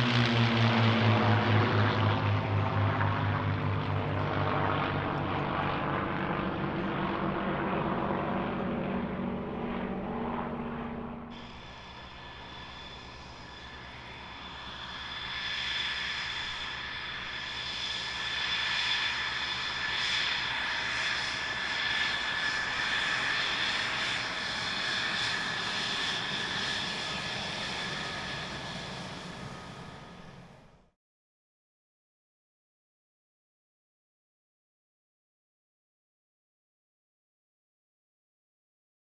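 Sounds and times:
jet engine whine: 0:00.0 - 0:31.0.

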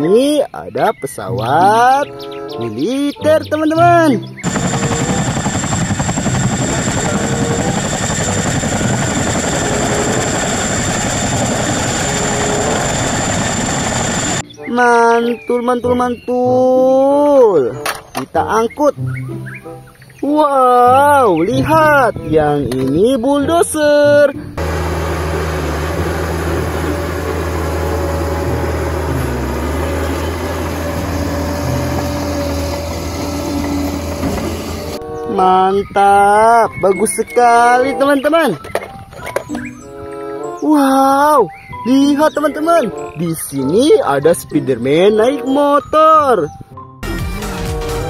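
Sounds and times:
helicopter rotors chopping: 0:04.3 - 0:14.4, 0:24.6 - 0:35.0
high engine whine: 0:04.4 - 0:14.4, 0:24.6 - 0:35.0.

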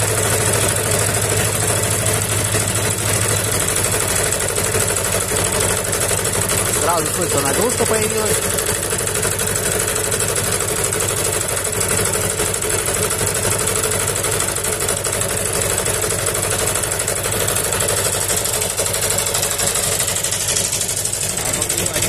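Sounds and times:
small generator engine running: 0:00.0 - 0:22.0.

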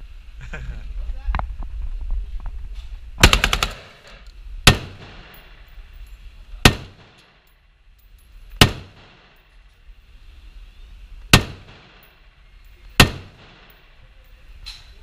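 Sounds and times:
rifle automatic burst: 0:03.2 - 0:05.4, 0:13.0 - 0:13.8
single gunshots: 0:03.2 - 0:05.5, 0:06.6 - 0:07.4, 0:08.6 - 0:09.4, 0:11.3 - 0:12.1, 0:13.0 - 0:13.8.

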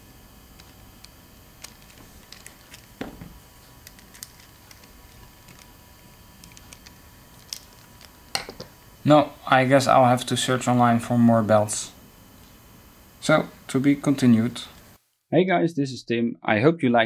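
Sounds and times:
loud knock: 0:03.0 - 0:03.4.

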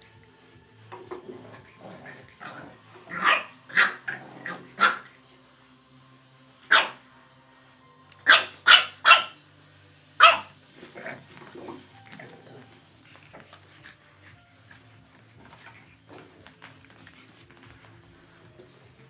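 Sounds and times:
puppies barking: 0:01.7 - 0:05.2, 0:06.7 - 0:07.0, 0:08.2 - 0:09.4, 0:10.2 - 0:17.9.

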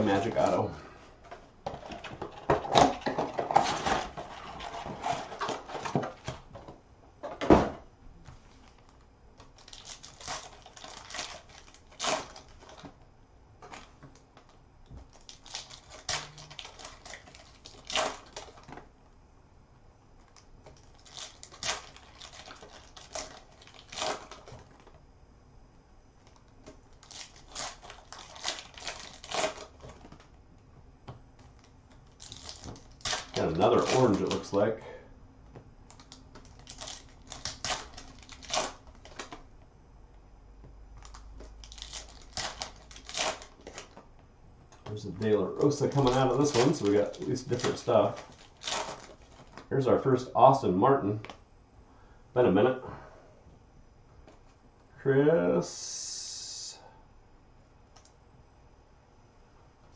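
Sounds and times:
plastic wrapping crinkling: 0:00.0 - 0:00.6, 0:01.3 - 0:06.5, 0:08.4 - 0:13.0, 0:13.6 - 0:18.9, 0:20.2 - 0:25.0, 0:26.2 - 0:30.4, 0:31.4 - 0:34.6, 0:35.9 - 0:39.5, 0:41.0 - 0:50.6
foil pack tearing: 0:09.6 - 0:12.9, 0:15.1 - 0:18.8, 0:20.3 - 0:25.0, 0:26.9 - 0:30.2, 0:31.4 - 0:34.6, 0:35.9 - 0:39.4, 0:41.0 - 0:44.0, 0:44.8 - 0:49.7.

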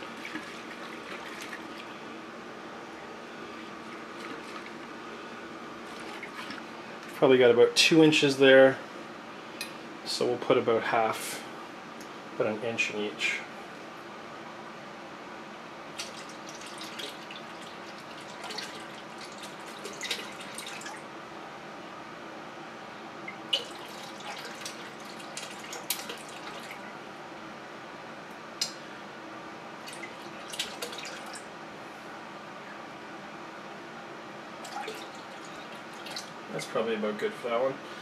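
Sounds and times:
liquid splashing and dripping: 0:16.0 - 0:21.0, 0:23.3 - 0:26.8, 0:29.8 - 0:31.5, 0:34.6 - 0:36.4.

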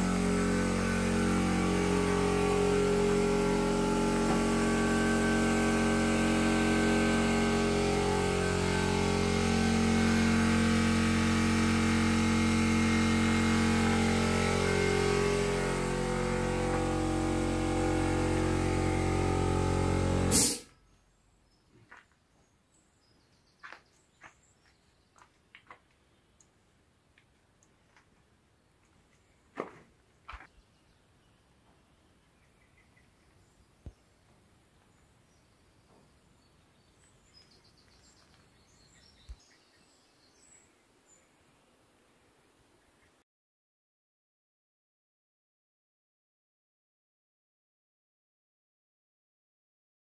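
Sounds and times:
motor droning hum: 0:00.0 - 0:20.6
motor switching off click: 0:00.0 - 0:20.7.

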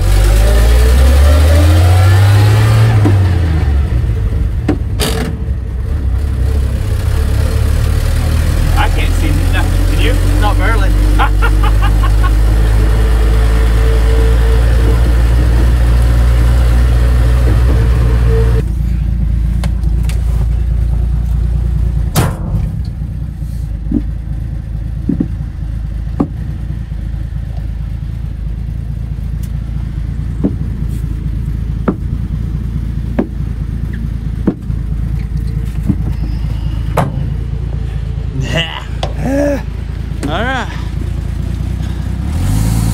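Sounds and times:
pickup truck engine droning: 0:00.0 - 0:42.9
knocks and rattles: 0:22.1 - 0:23.2, 0:23.8 - 0:26.7, 0:30.1 - 0:37.7.

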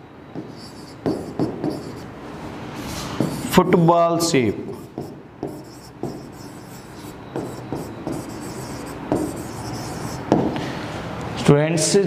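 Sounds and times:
stylus scratching on glass: 0:00.4 - 0:02.1, 0:03.2 - 0:03.6, 0:04.8 - 0:10.3.

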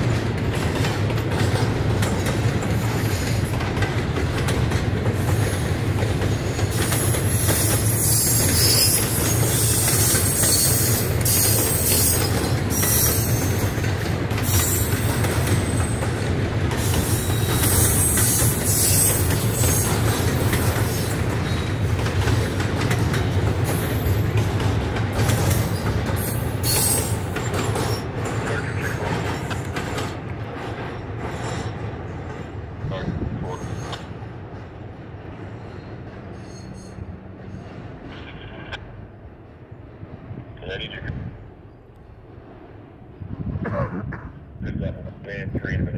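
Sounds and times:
freight train rumbling on rails: 0:00.0 - 0:45.9
shrill wheel squeal: 0:07.0 - 0:13.6, 0:17.0 - 0:20.0, 0:25.6 - 0:28.1, 0:35.6 - 0:37.7.

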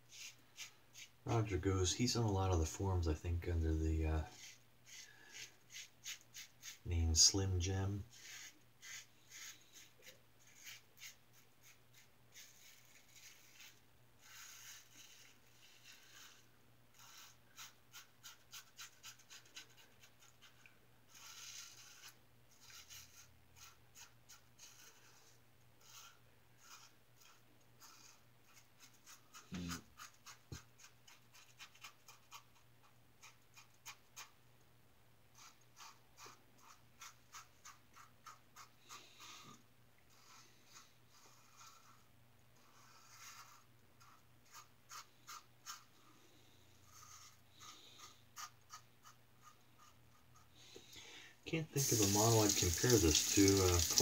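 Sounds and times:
razor scraping stubble: 0:51.8 - 0:54.0.

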